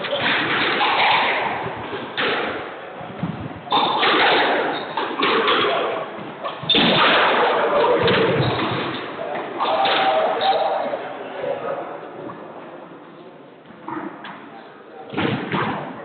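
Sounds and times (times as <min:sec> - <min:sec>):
squash balls smacking rackets and walls: 0:00.0 - 0:10.2, 0:15.1 - 0:16.0
steady hall din: 0:00.0 - 0:16.0.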